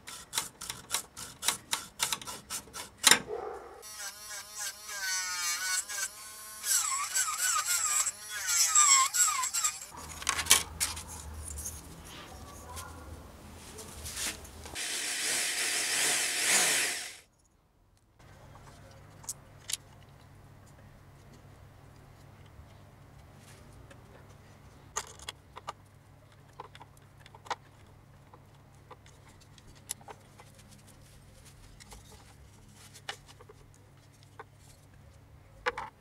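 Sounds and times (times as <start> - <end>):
electric drill boring through wood: 3.8 - 10.0, 14.8 - 17.2.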